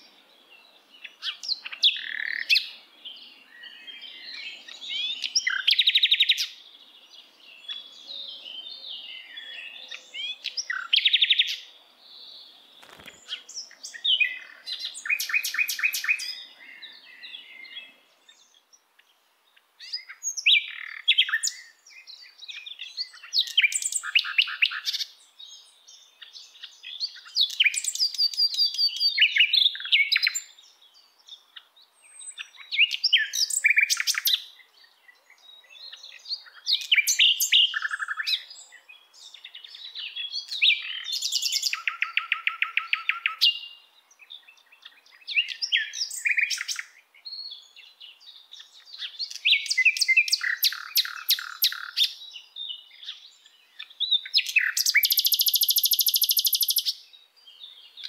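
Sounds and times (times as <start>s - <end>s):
songbird singing chirps and trills: 0.0s - 58.0s.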